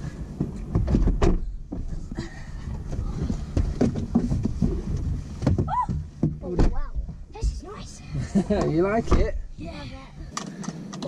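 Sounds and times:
car door and seat clunks: 0.4s - 1.6s.

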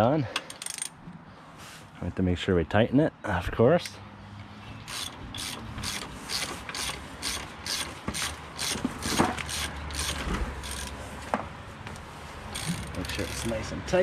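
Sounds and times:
socket ratchet clicking: 0.5s - 1.0s, 4.9s - 11.0s, 12.5s - 13.6s.

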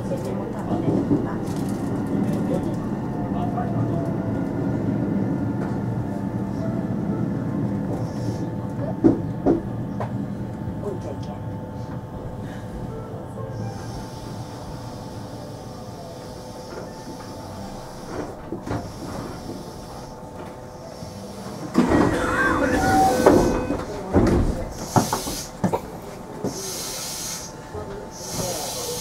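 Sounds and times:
electric train humming: 0.0s - 29.0s
train clattering knocks: 9.0s - 10.2s, 21.7s - 25.8s.

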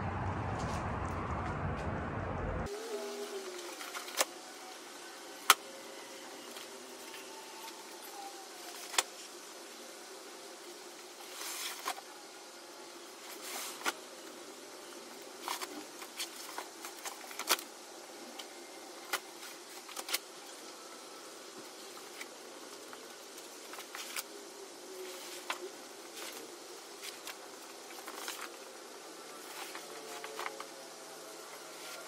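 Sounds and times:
faint steady hum: 0.0s - 32.0s
footsteps: 0.4s - 2.4s.

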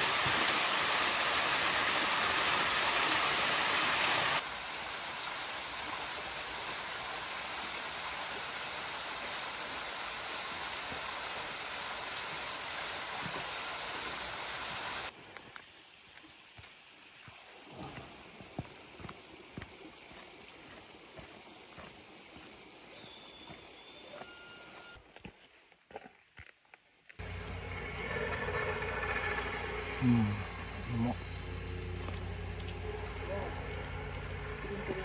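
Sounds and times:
small waterfall rushing: 0.0s - 23.8s.

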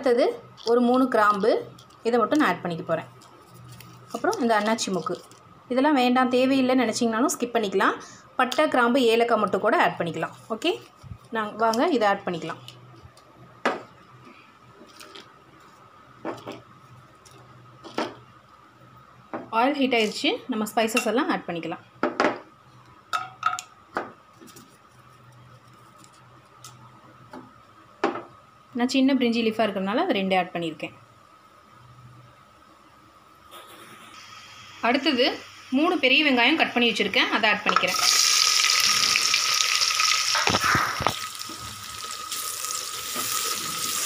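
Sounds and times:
onions sizzling in hot oil: 34.2s - 44.0s.

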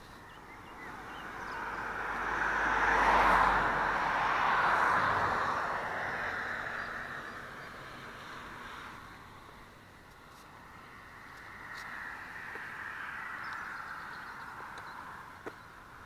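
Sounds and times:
vehicle passing by: 0.6s - 9.8s.

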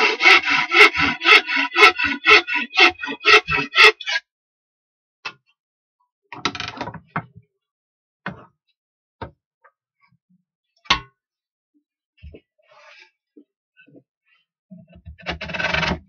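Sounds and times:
scraping rasp: 0.0s - 4.2s.

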